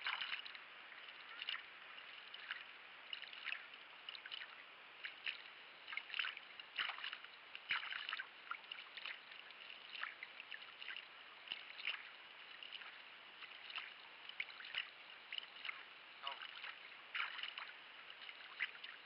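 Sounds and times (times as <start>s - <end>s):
paddle splashing in water: 0.0s - 19.0s.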